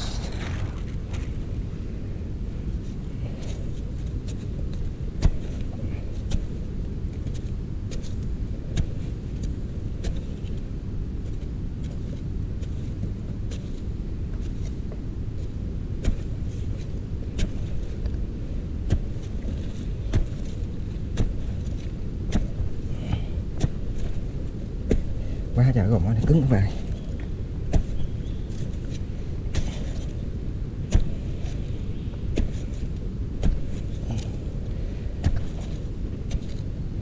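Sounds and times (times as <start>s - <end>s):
digging tool striking hard earth: 0.0s - 1.4s, 20.1s - 25.1s, 27.6s - 30.2s, 30.8s - 31.7s, 32.3s - 36.7s
low rumble: 0.0s - 2.8s.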